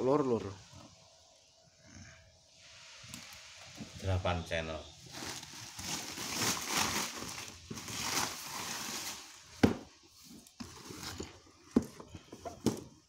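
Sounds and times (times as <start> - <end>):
cardboard box rustling: 5.1 - 13.0
knocks on cardboard box: 9.6 - 9.9.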